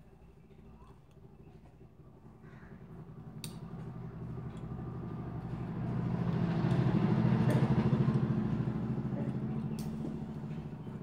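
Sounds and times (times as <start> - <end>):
vehicle engine passing: 2.8 - 11.0.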